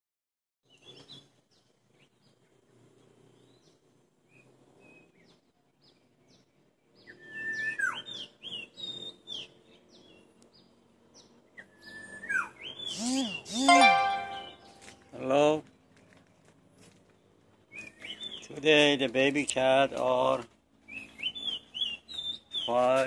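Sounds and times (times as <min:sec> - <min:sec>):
faint outdoor hum: 0:00.7 - 0:23.0
birds chirping and whistling: 0:06.3 - 0:14.8, 0:17.7 - 0:18.7, 0:20.8 - 0:23.0.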